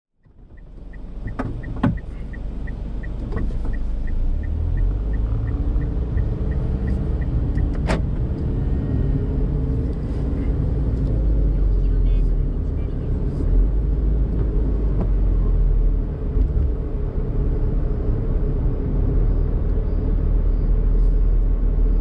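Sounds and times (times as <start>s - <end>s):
car engine and road rumble: 0.1s - 22.0s
turn signal ticking: 0.2s - 16.9s.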